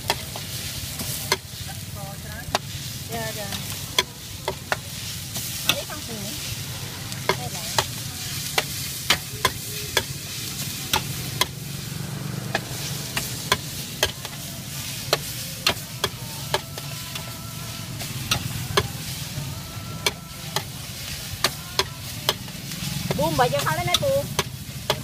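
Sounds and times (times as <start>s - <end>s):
noodles sizzling on a pan: 0.0s - 25.0s
metal spatula clacking on pan: 1.1s - 1.6s, 7.2s - 10.2s, 10.9s - 11.6s, 13.2s - 14.4s, 21.4s - 25.0s.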